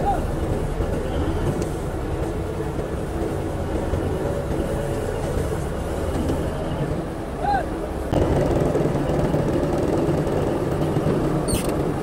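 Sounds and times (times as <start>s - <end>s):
bulldozer diesel engine running: 0.0s - 12.0s.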